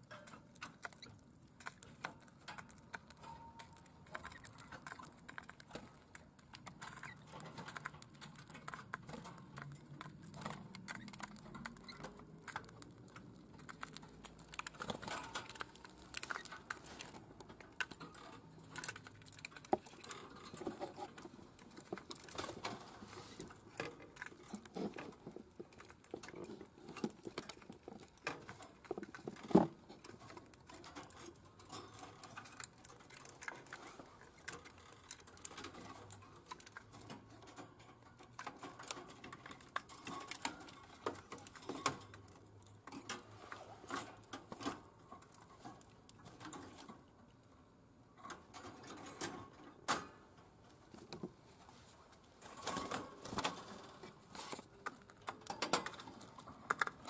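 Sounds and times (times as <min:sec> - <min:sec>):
bird cracking seeds: 0:00.1 - 0:36.9.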